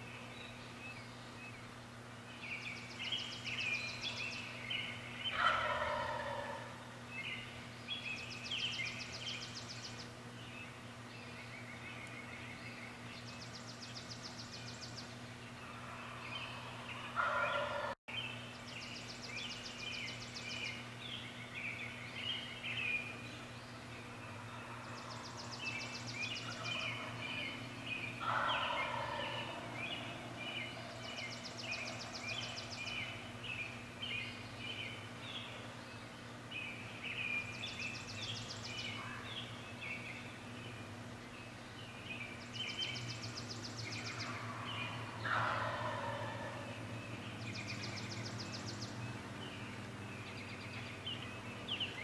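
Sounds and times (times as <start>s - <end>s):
songbirds chirping and trilling: 0.0s - 52.0s
steady low hum: 0.0s - 52.0s
wild turkey gobbling: 5.3s - 6.8s, 15.8s - 18.0s, 26.4s - 27.6s, 28.2s - 30.2s, 44.2s - 46.7s.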